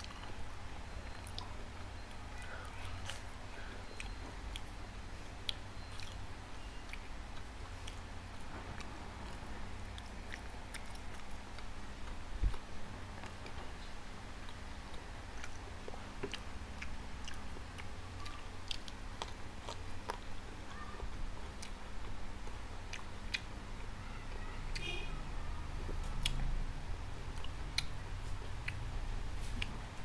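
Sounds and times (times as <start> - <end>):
faint low hum: 0.0 - 30.0
person chewing food: 1.0 - 20.5, 21.4 - 24.0, 25.9 - 26.6, 27.2 - 30.0
wet mouth clicks and smacks: 27.3 - 28.0.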